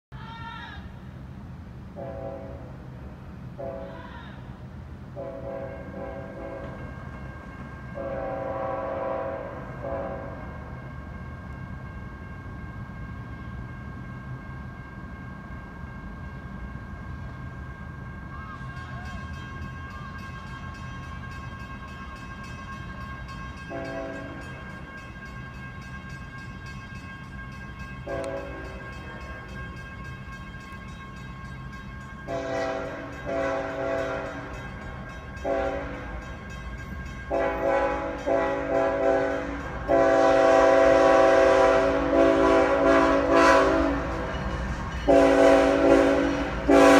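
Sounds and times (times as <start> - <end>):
locomotive air horn blasts: 2.0 - 2.8, 3.6 - 4.0, 5.2 - 6.8, 8.0 - 10.6, 23.7 - 24.5, 28.1 - 28.8, 32.3 - 34.6, 35.4 - 36.1, 37.3 - 44.3, 45.1 - 46.9
low rumble of diesel engines: 32.2 - 46.9.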